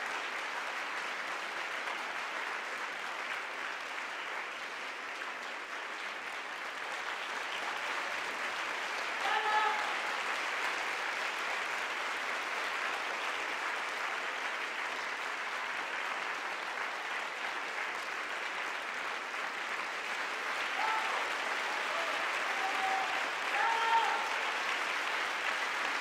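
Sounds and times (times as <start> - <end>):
audience applauding: 0.0 - 26.0.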